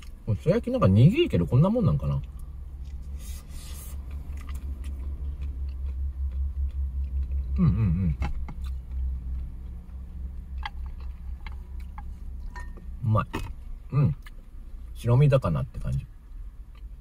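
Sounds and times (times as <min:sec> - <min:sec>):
steady low rumble: 0:00.0 - 0:17.0
man chewing: 0:02.2 - 0:12.9, 0:16.3 - 0:17.0
man humming: 0:07.5 - 0:08.3.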